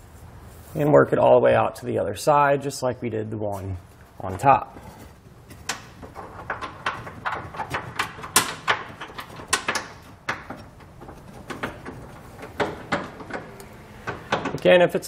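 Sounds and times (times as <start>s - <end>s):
metal clicks and knocks: 5.4s - 14.7s.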